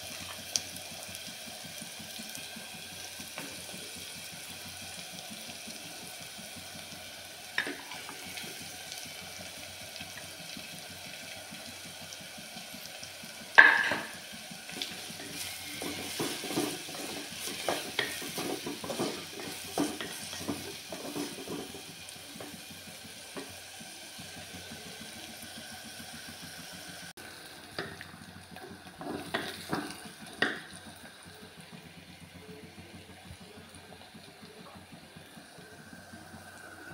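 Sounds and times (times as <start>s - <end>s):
onions sizzling in oil: 0.0s - 36.9s
sharp knocks on a pot: 13.6s - 14.2s
spatula scraping a pot: 14.9s - 21.8s.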